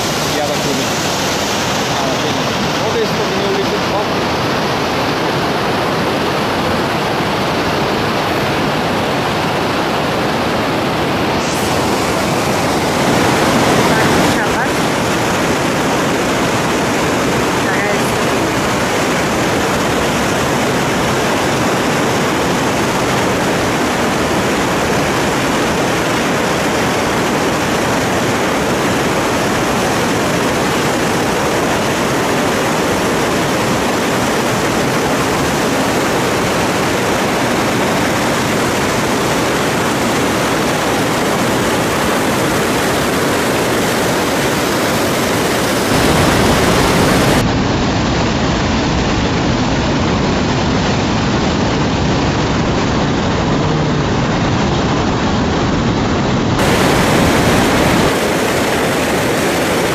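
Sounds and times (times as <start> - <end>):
river rapids rushing: 0.0 - 47.6, 50.0 - 59.9.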